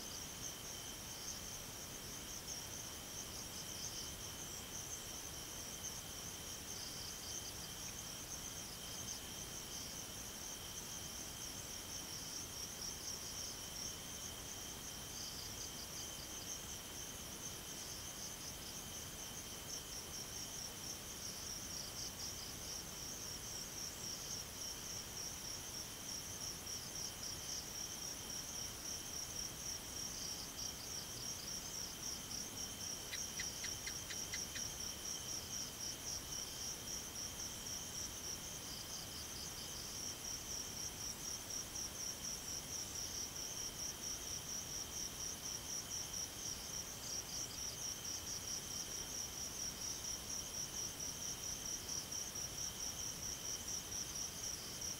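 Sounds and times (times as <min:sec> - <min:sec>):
insects trilling: 0:00.0 - 0:54.9.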